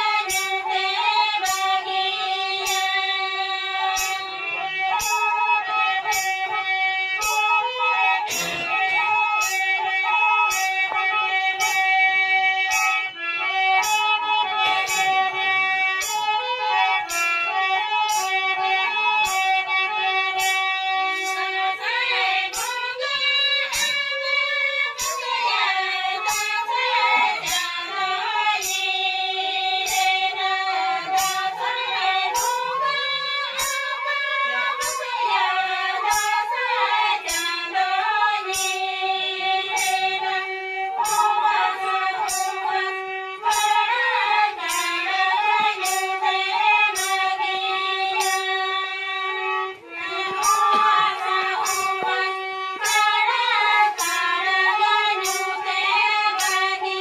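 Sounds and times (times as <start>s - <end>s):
women singing folk song: 0.0s - 6.2s, 21.2s - 57.0s
bamboo flute: 0.0s - 57.0s
harmonium: 0.0s - 57.0s
percussive beat: 6.0s - 6.6s, 8.3s - 11.0s, 12.6s - 19.6s, 20.4s - 29.0s, 29.8s - 37.7s, 39.6s - 48.6s, 50.1s - 57.0s.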